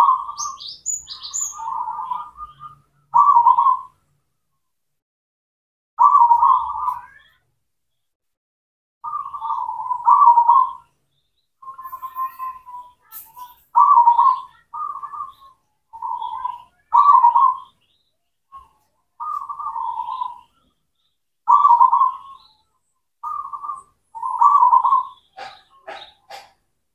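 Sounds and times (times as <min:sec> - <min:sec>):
dove cooing: 0:00.0 - 0:04.0, 0:06.0 - 0:07.1, 0:09.0 - 0:10.9, 0:13.7 - 0:17.8, 0:18.5 - 0:20.6, 0:21.5 - 0:22.4, 0:23.2 - 0:26.6.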